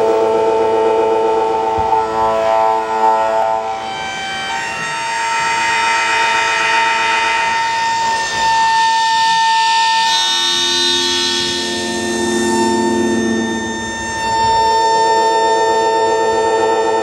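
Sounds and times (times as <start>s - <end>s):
low drone: 0.0s - 17.0s
siren-like electronic tones: 0.0s - 17.0s
steady high tone: 0.0s - 17.0s.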